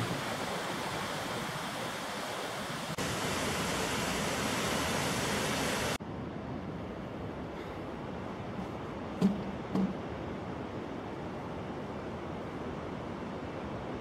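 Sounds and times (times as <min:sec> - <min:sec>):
river rushing over boulders: 0:00.0 - 0:06.0.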